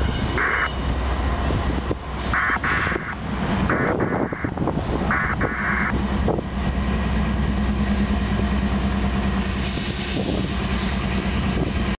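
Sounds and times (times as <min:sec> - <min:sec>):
diesel locomotive engine drone: 0:00.0 - 0:12.0.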